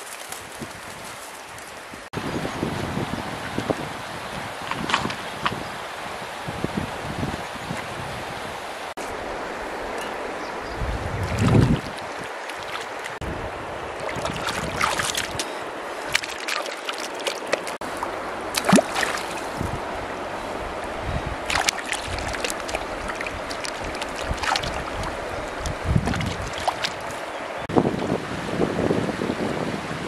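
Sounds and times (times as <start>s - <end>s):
stream flowing: 2.9s - 30.0s
water splashing and sloshing: 8.9s - 27.7s.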